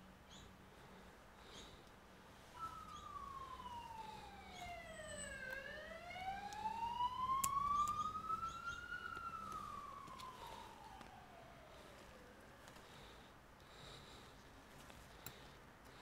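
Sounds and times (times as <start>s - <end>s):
siren wailing: 2.4s - 13.0s.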